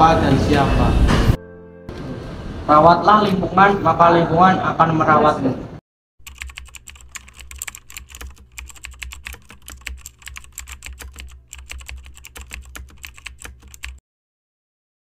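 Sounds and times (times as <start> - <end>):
keyboard key clicks: 6.2 - 14.0.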